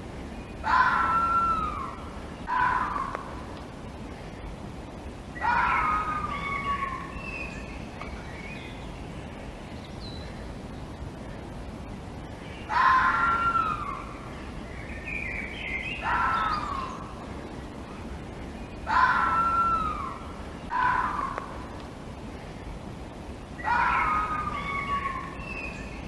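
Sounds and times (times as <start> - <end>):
fox screaming: 0.6 - 3.4, 5.4 - 7.2, 12.7 - 14.2, 16.0 - 17.0, 18.9 - 21.7, 23.6 - 25.5
softer higher fox calls: 0.6 - 3.6, 5.3 - 7.8, 12.4 - 14.4, 15.4 - 17.3, 18.8 - 21.8, 23.6 - 26.0.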